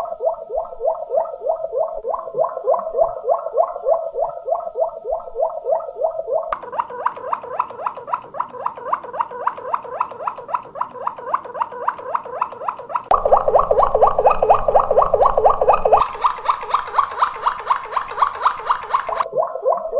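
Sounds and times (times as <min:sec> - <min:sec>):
canary singing rapid notes: 0:06.7 - 0:19.3.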